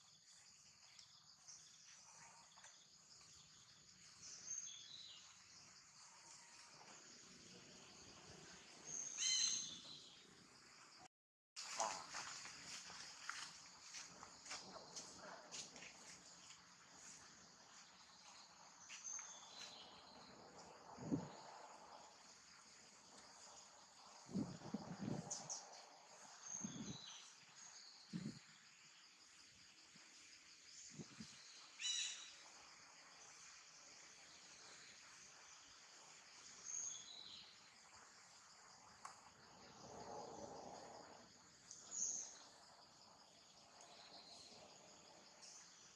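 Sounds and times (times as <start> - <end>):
high-pitched insect chorus: 11.6 - 45.9.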